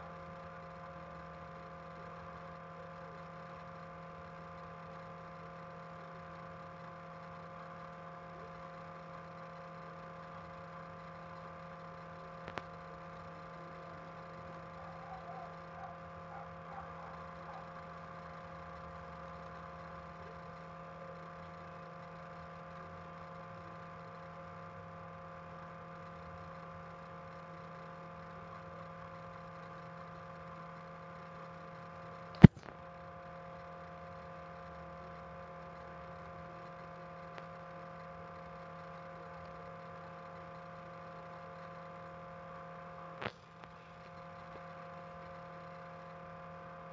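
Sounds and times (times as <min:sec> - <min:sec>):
steady background hum: 0:00.0 - 0:46.9
sharp clicks: 0:32.3 - 0:32.8.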